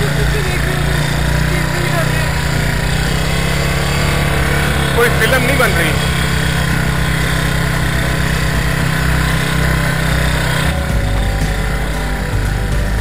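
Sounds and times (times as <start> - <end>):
small motorcycle engine running: 0.0 - 13.0.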